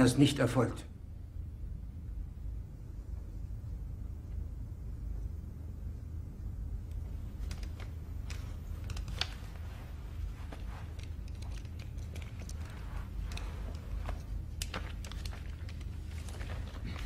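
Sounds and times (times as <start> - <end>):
low room hum: 0.0 - 17.0
glasses clicking and rustling: 7.0 - 17.0.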